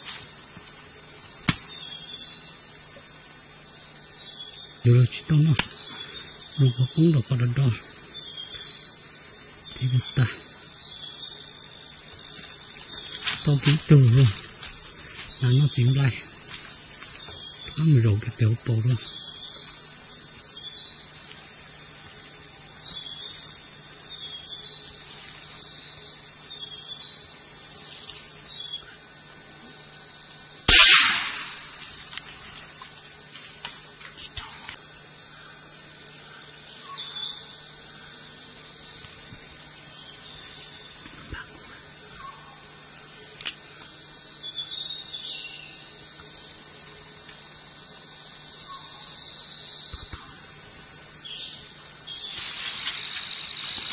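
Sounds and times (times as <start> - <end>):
insects droning and chirping: 0.0 - 53.9
loud sharp bang: 30.7 - 31.8.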